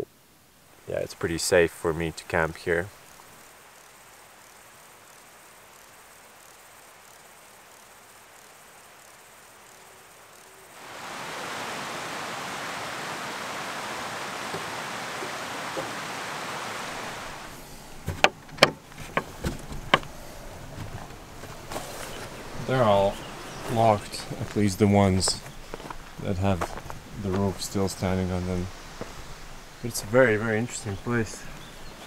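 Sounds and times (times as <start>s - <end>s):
mountain stream rushing: 3.0s - 32.0s.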